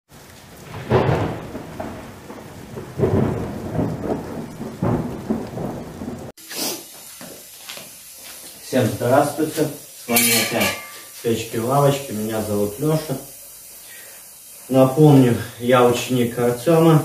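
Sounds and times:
thunder rumbling: 0.1s - 6.3s
steady rain: 0.1s - 17.0s.

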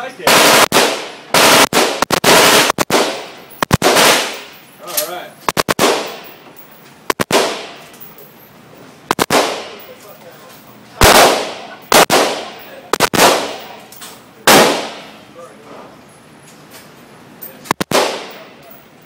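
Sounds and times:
echoing gunshots: 0.2s - 4.6s, 5.4s - 6.4s, 7.1s - 7.9s, 9.1s - 9.9s, 11.0s - 13.8s, 14.4s - 15.2s, 17.7s - 18.5s.

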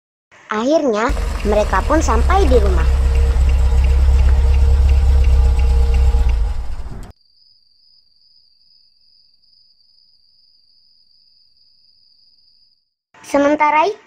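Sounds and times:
car engine idling: 1.1s - 7.1s
high-pitched cricket trill: 7.1s - 12.9s.

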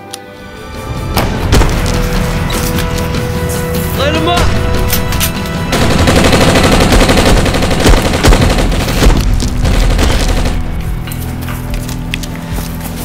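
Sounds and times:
automatic gunfire: 5.7s - 10.8s.

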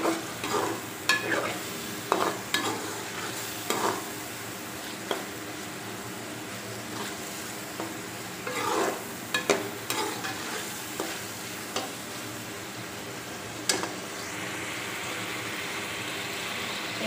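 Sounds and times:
spoon scraping and knocking pan: 0.0s - 4.1s, 6.9s - 12.0s
frying sizzle: 0.0s - 17.0s.

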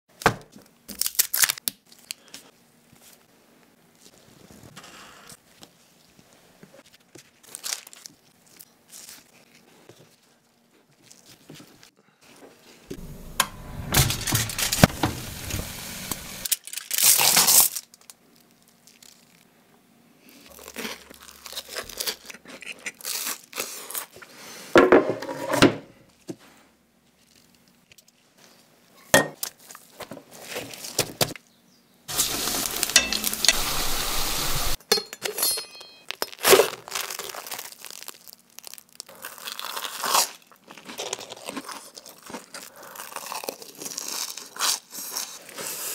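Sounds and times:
packaging crinkling and tearing: 0.9s - 3.2s, 6.9s - 11.5s, 14.1s - 19.5s, 20.4s - 24.2s, 36.0s - 45.9s
frying sizzle: 13.0s - 16.5s, 32.1s - 34.8s
crunchy bites: 36.2s - 45.4s.

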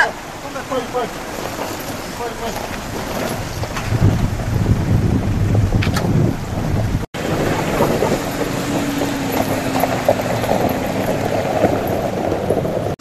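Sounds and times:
car engine running: 0.0s - 13.0s
tyres crunching over ice and stones: 0.5s - 4.0s, 7.3s - 13.0s.

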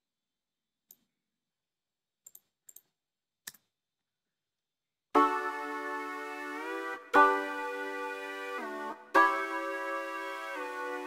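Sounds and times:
held synthesizer chord: 5.2s - 11.0s.

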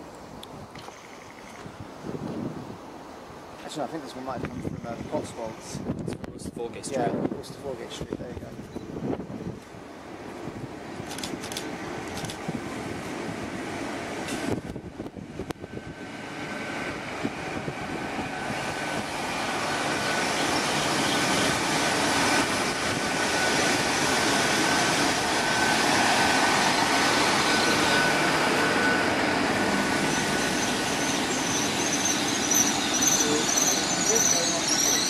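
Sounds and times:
train diesel engines whining: 8.6s - 35.0s
high-pitched brake squeals: 26.8s - 35.0s.

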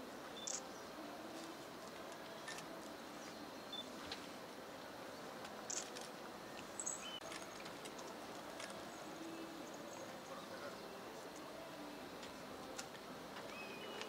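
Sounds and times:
faint outdoor background hiss: 0.0s - 14.0s.

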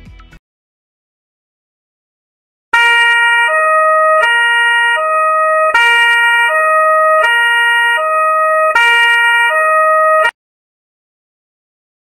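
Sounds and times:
two-tone emergency siren: 2.8s - 10.4s.

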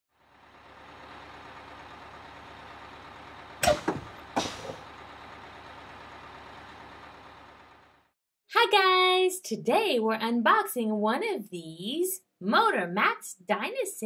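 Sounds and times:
sharp loud bursts: 3.6s - 4.8s.

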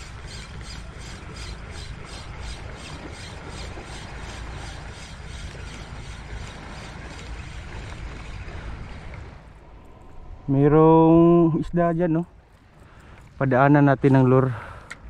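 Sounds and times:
fishing reel whirring: 0.0s - 8.3s.

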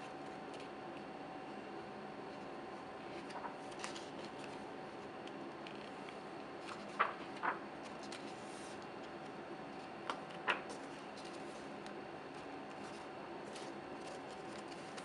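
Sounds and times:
faint steady hum: 0.0s - 15.0s
paper pages rustling: 3.1s - 15.0s
page flicks: 6.7s - 8.3s.

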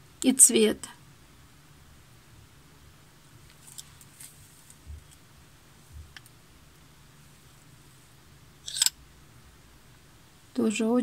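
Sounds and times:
low room hum: 0.0s - 11.0s
faint clicks and taps: 3.5s - 5.2s.

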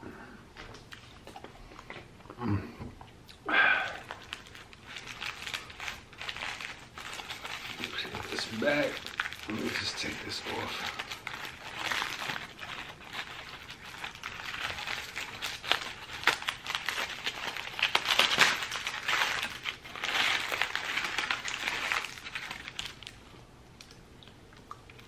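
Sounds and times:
foil wrapper crinkling: 3.8s - 23.3s.

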